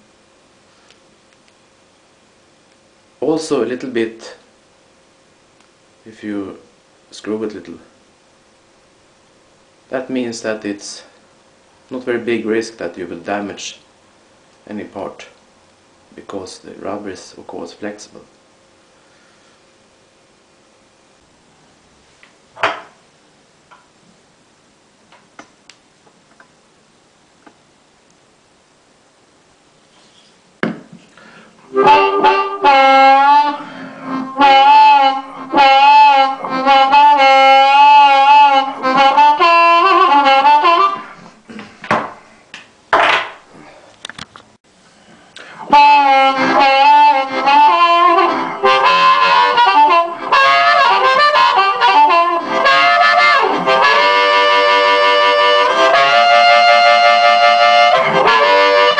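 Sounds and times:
amplified blues harmonica: 31.2 - 41.4, 45.4 - 58.9.

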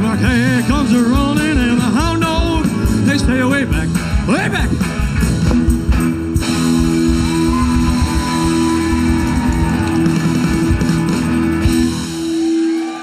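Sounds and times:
drum kit: 0.0 - 13.0
electric bass: 0.0 - 13.0
electric guitar: 0.0 - 13.0
keyboards: 0.0 - 13.0.

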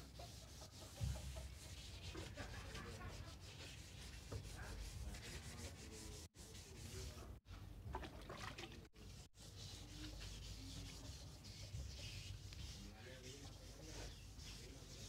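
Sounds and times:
sandpaper scraping metal: 9.4 - 15.0.

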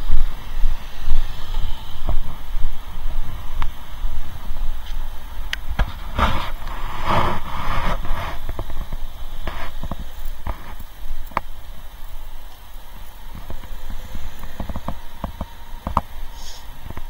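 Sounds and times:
cars driving past: 0.0 - 17.0
low traffic rumble: 0.0 - 17.0.

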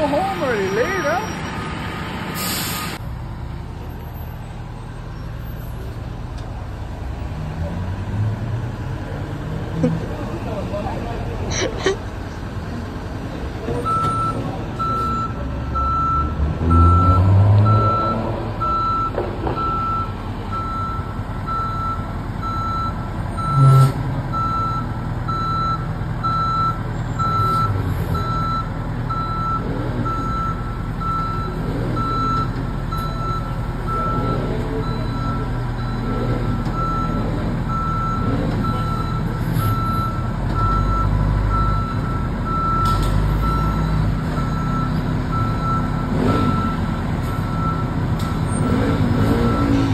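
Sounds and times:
truck reversing beeper: 0.0 - 3.0, 13.8 - 49.9
diesel engine running: 0.0 - 49.9.

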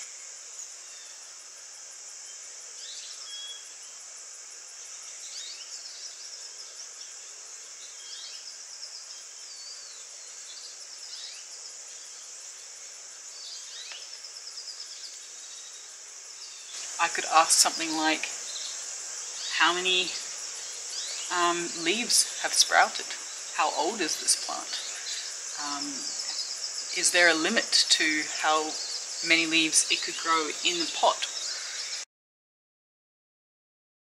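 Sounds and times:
high-pitched insect drone: 0.0 - 32.0.

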